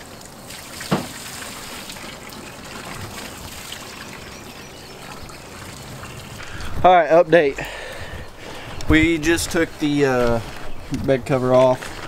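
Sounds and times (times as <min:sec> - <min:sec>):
hose water splashing on tarp: 0:00.0 - 0:06.4.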